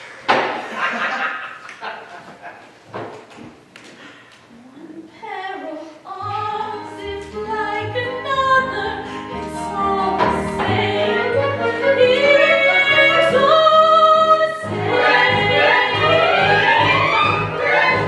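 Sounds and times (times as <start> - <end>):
instrumental accompaniment: 6.4 - 18.0
group of voices singing: 9.5 - 18.0.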